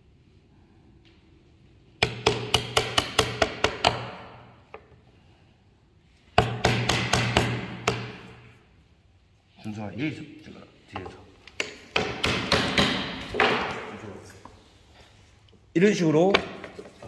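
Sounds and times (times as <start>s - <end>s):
hammer striking chisel into wood: 2.0s - 4.5s, 6.4s - 8.4s, 11.6s - 13.7s.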